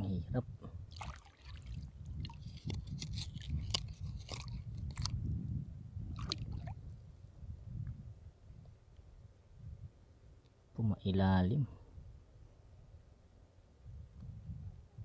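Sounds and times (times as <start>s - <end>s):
low water rumble: 0.6s - 8.6s
sand crunching underwater: 0.9s - 5.2s.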